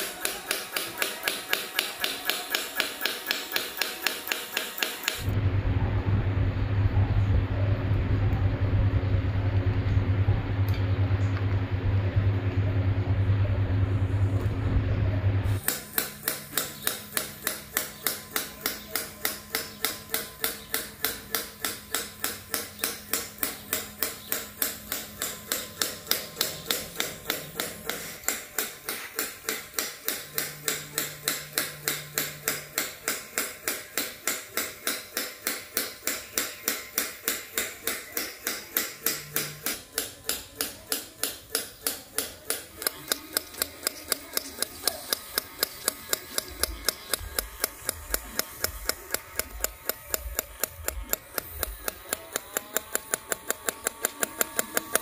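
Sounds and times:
rapid mechanical clicking: 0.0 - 5.4, 15.6 - 55.0
small motor humming: 15.4 - 55.0.

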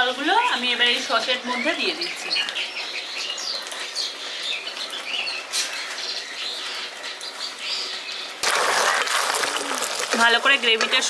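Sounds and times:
small birds chirping: 0.1 - 8.4.

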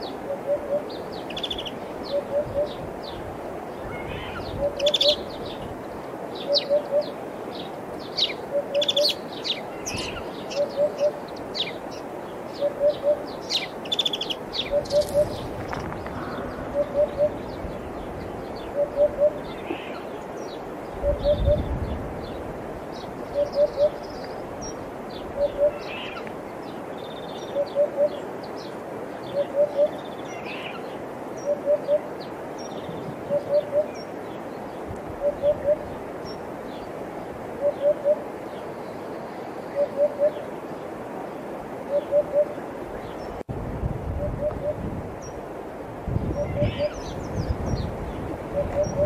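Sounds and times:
hoopoe calling: 0.0 - 3.2, 3.8 - 5.8, 6.4 - 20.2, 21.0 - 21.8, 23.2 - 26.4, 27.4 - 28.4, 29.3 - 32.2, 33.1 - 34.2, 35.0 - 36.2, 37.5 - 38.4, 39.6 - 40.6, 41.8 - 43.2, 44.2 - 44.9, 46.3 - 47.2, 48.4 - 49.0
sparrows chirping: 0.8 - 3.2, 3.8 - 5.7, 6.4 - 36.9, 46.1 - 49.0.

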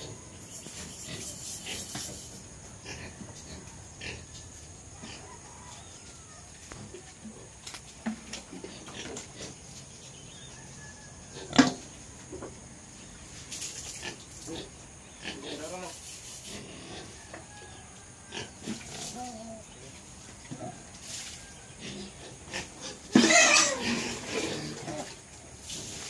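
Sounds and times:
pigs grunting: 0.0 - 5.4, 14.0 - 17.2, 21.8 - 25.3.

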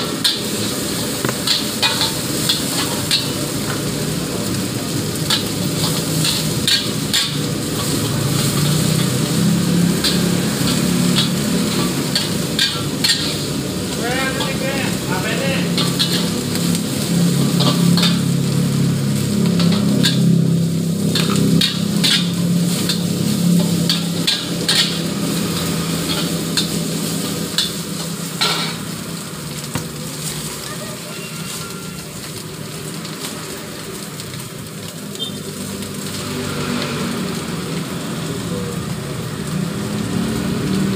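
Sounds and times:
spatula scraping and clanking on wok: 0.0 - 32.4
egg and garlic sizzling in wok: 0.0 - 40.9.

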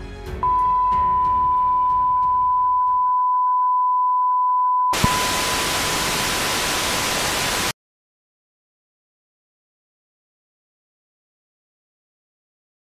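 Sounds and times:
steady beep tone: 0.4 - 6.1
tv static hiss: 5.0 - 7.7.

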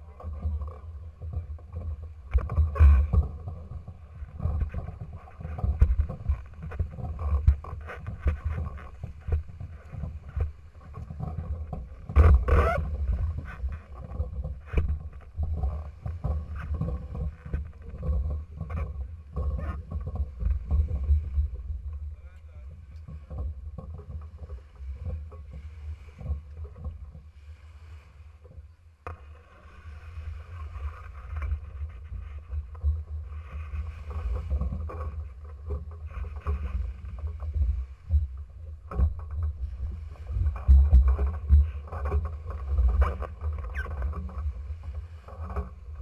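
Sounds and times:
water splashing around hulls: 0.0 - 46.0
knocks through boat hull: 1.3 - 22.1.

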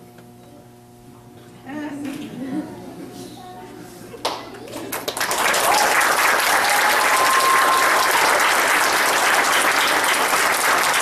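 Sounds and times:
crowd clapping: 4.2 - 11.0.

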